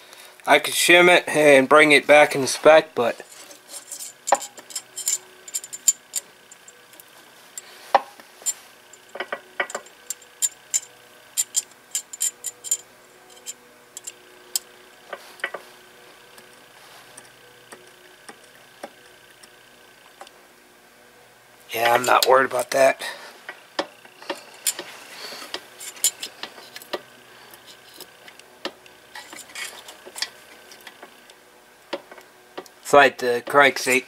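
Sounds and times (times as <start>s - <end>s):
metal tools clicking and clinking: 3.2s - 7.0s, 8.4s - 14.8s, 24.2s - 25.0s, 25.7s - 28.4s, 29.1s - 31.0s.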